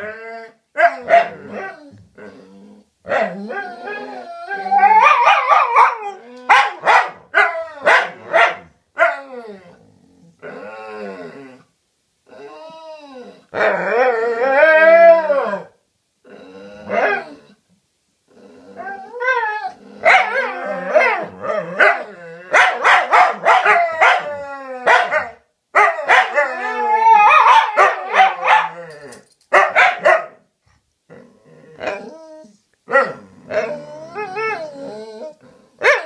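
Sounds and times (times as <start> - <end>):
dogs howling: 3.2 - 8.2, 18.8 - 29.2, 31.8 - 35.4
dogs barking and yipping: 4.6 - 9.3, 20.0 - 30.4.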